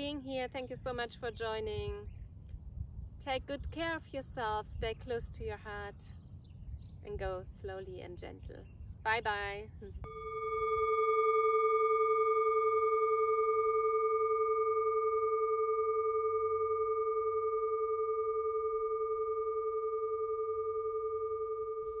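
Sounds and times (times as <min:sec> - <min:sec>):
singing bowl ringing: 0:10.1 - 0:22.0.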